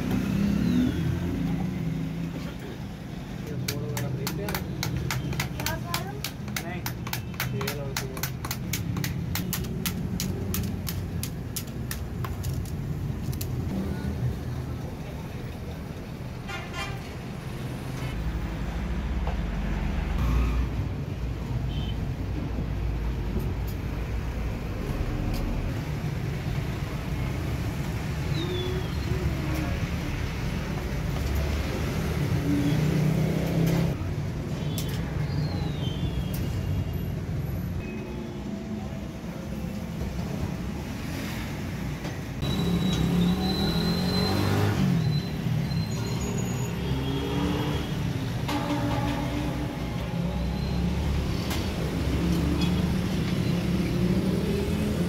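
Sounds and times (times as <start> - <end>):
road traffic rumble: 0.0 - 55.0
vehicles passing: 0.0 - 55.0.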